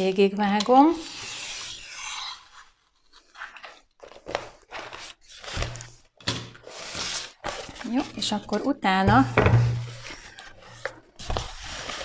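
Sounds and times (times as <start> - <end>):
knife scraping through vinyl film: 1.0 - 3.6
film crinkling and rustling: 2.6 - 8.7, 9.9 - 12.0.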